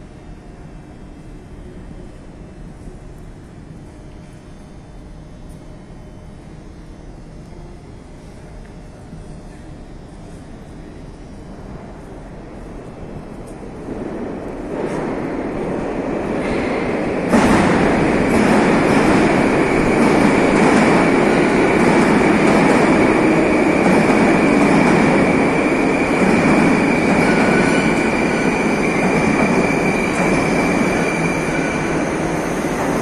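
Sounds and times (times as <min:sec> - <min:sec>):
steady high whine: 0:01.4 - 0:33.0
train wheels rushing: 0:13.2 - 0:33.0.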